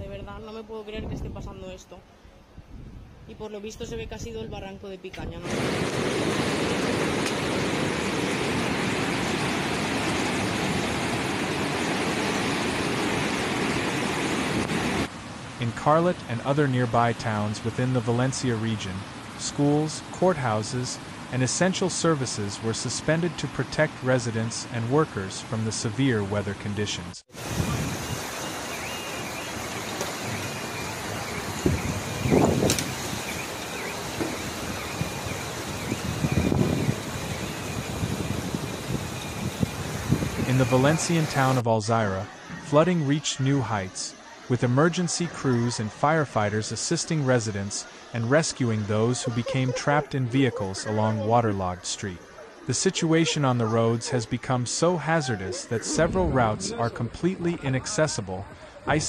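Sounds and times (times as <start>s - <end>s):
rain: 5.4s - 24.6s, 27.3s - 41.6s
floodwater torrent rushing: 5.4s - 59.0s.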